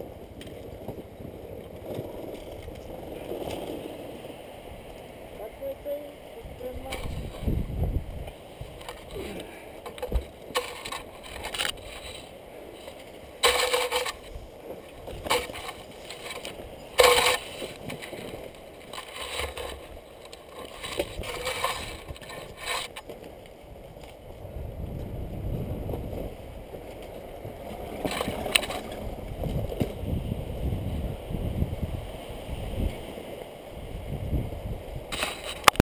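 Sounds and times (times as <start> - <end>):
branches rustling against camera: 0.0 - 30.2, 35.1 - 35.8
low microphone rumble: 0.8 - 13.0, 24.3 - 32.0.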